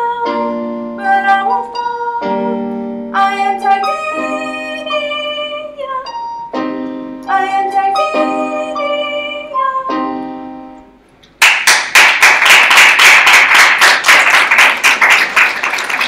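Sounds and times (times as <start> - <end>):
electronic keyboard chords: 0.0 - 11.4
audience applause: 11.4 - 16.0.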